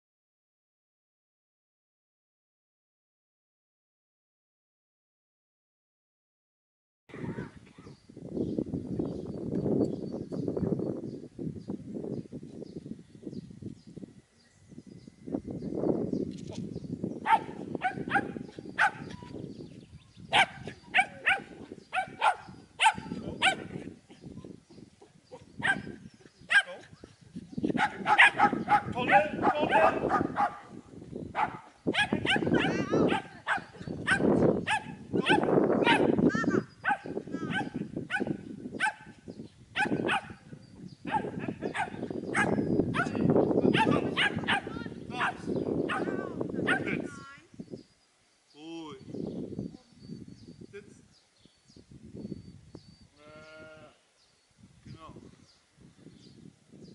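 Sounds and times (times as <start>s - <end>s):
dog barking high-pitched: 17.2s - 19.1s, 20.3s - 23.7s, 25.6s - 26.8s, 27.8s - 30.7s, 31.4s - 36.2s, 36.8s - 39.1s, 39.8s - 40.4s, 41.1s - 46.9s.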